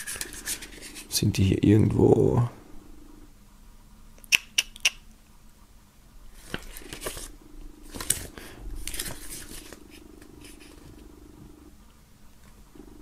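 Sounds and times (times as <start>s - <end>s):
paper pages rustling: 0.0s - 1.1s, 6.4s - 11.0s.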